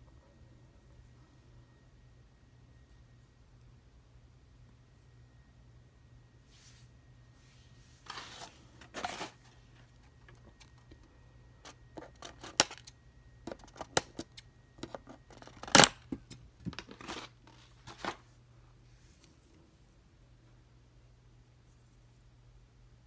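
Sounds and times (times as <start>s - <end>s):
plastic and cardboard scraping: 8.0s - 9.9s.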